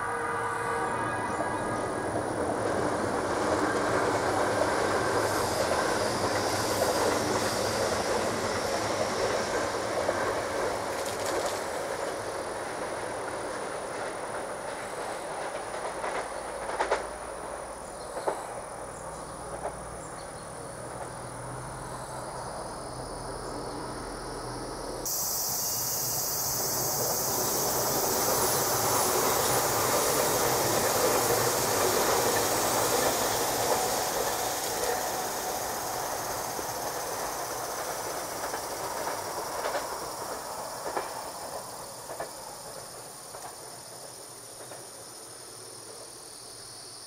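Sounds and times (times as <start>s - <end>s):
electric train running on rails: 0.0s - 47.0s
wheels clacking over rail joints: 2.6s - 18.6s, 27.3s - 45.0s.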